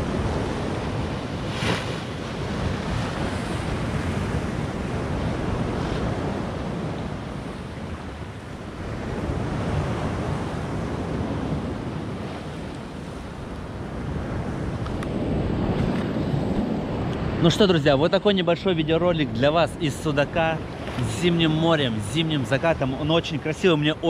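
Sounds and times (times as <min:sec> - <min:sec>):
wind on microphone: 0:00.0 - 0:23.1
waves breaking on concrete: 0:00.3 - 0:04.2
water splash: 0:01.4 - 0:02.2.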